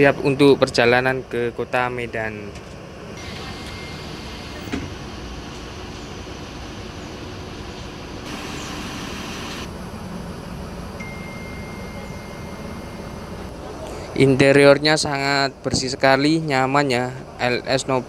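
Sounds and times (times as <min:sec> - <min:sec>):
bus engine idling: 0:02.8 - 0:14.2
hiss: 0:08.3 - 0:09.7.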